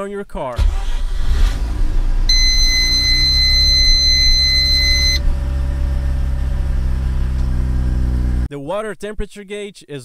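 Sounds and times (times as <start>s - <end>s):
high-pitched electronic beep: 2.3s - 5.2s.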